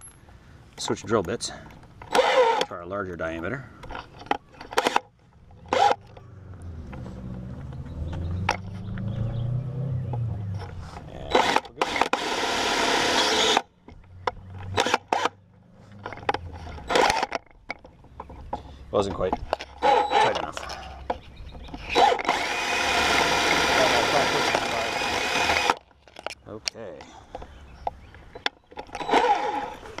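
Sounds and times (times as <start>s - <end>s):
drill motor running: 2.1s - 2.7s, 5.7s - 6.1s, 11.3s - 13.6s, 19.8s - 20.5s, 21.8s - 25.8s, 29.0s - 30.0s
drill bit grinding into metal: 11.3s - 13.6s, 19.8s - 20.5s, 21.8s - 25.8s, 28.9s - 30.0s
drill chuck clicks: 21.7s - 26.4s.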